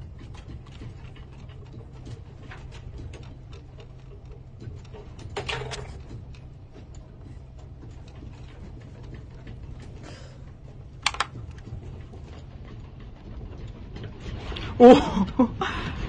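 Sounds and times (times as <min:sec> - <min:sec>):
office fittings rattling and clicking: 0:00.0 - 0:12.4.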